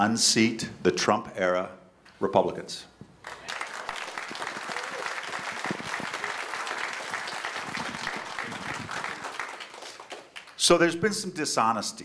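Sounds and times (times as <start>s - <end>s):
audience applauding: 3.2s - 10.6s.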